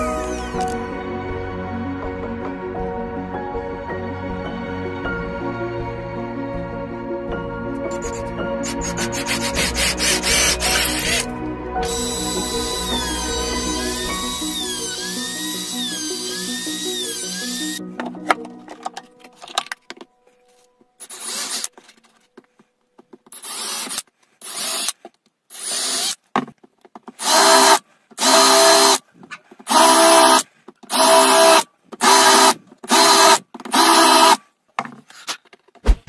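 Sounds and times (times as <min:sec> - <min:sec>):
cordless drill drilling into wood: 0:00.0 - 0:00.8, 0:08.9 - 0:17.8, 0:21.0 - 0:21.7, 0:23.3 - 0:26.2, 0:27.2 - 0:29.0, 0:29.7 - 0:34.4.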